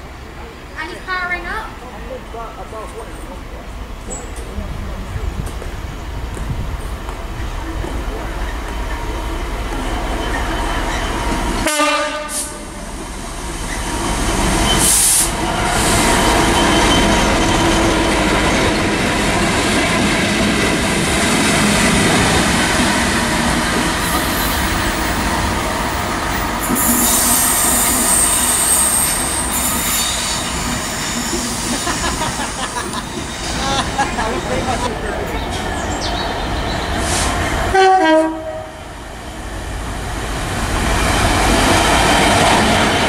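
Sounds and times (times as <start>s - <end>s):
diesel locomotive engines droning: 0.0s - 43.0s
train horn blast: 11.6s - 12.8s, 37.7s - 38.9s
high-pitched squeal: 13.6s - 19.0s, 23.9s - 32.3s.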